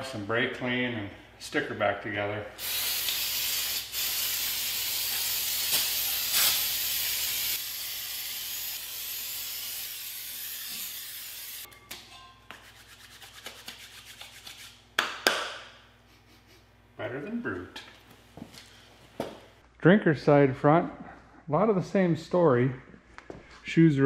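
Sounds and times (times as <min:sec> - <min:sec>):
aerosol spray hissing: 0:02.6 - 0:11.7.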